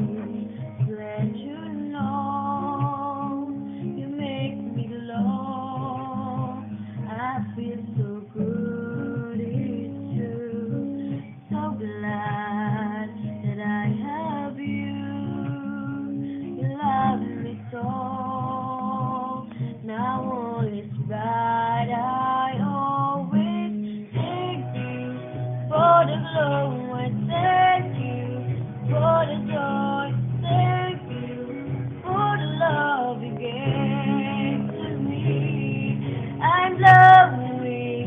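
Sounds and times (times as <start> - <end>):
strummed guitar: 0.0 - 38.0
child singing: 11.5 - 38.0.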